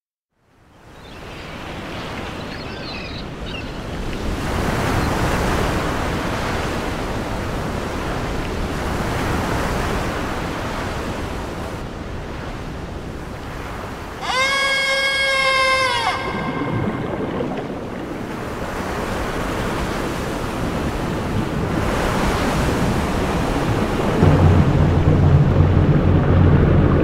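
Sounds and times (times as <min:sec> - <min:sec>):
sea surf washing in: 0:00.8 - 0:27.0
held pitched tone: 0:14.2 - 0:17.7.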